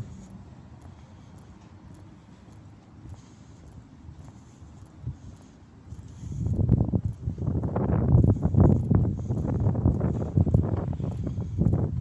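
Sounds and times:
footsteps on paving stones: 0.0s - 12.0s.

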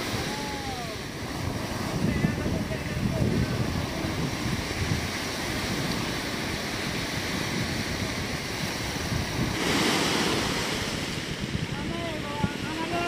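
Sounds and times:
surf breaking on beach: 0.0s - 13.0s
wind buffeting microphone: 0.0s - 13.0s.

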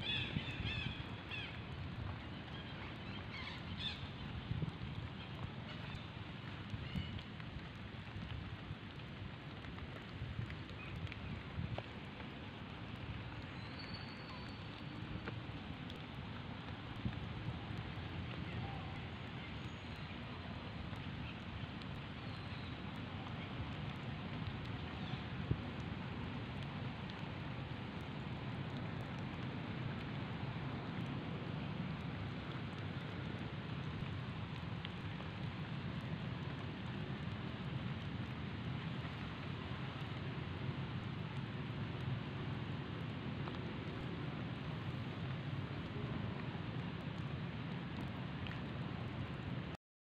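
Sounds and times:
outdoor background hiss: 0.0s - 49.8s.

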